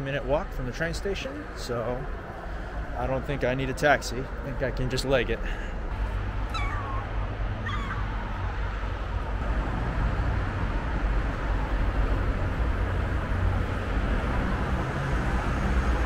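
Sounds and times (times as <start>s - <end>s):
city traffic rumble: 0.0s - 16.0s
cat meow: 6.5s - 8.1s.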